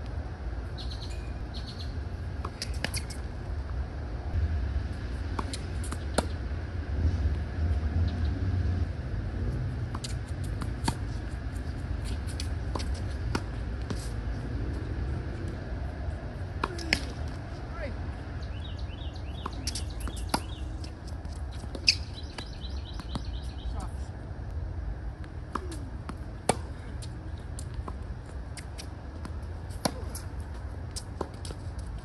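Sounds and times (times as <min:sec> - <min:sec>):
low rumble: 0:03.2 - 0:20.8
tennis ball bouncing on court: 0:09.9 - 0:11.2, 0:12.0 - 0:14.0, 0:19.3 - 0:23.6, 0:25.2 - 0:31.7
tennis ball struck by rackets: 0:16.6 - 0:17.4, 0:19.3 - 0:20.6, 0:25.4 - 0:26.8, 0:28.6 - 0:30.3.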